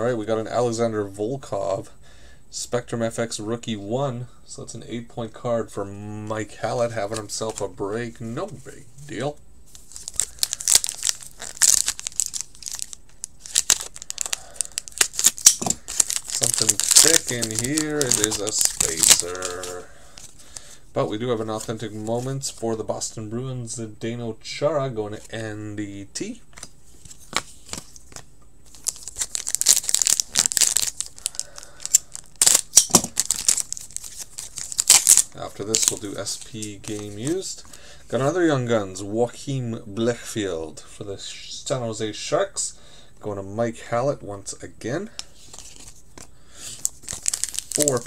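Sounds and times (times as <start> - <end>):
foil wrapper crinkling and tearing: 9.7 - 20.7, 27.0 - 37.5, 45.5 - 48.0.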